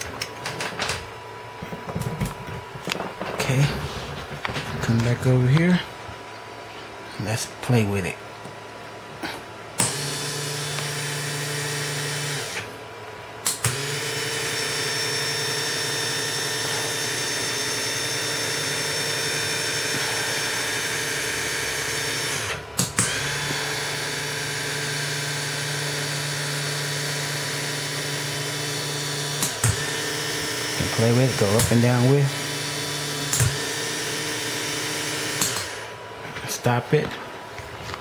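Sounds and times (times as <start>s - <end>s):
electric motor whining: 9.8s - 12.8s, 13.4s - 36.0s.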